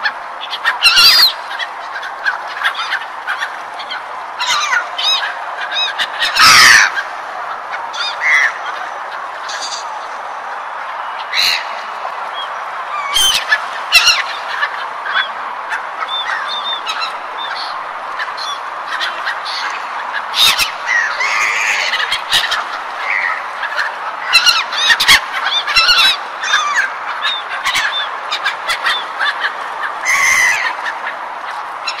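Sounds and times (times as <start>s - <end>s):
gulls calling: 0.0s - 32.0s.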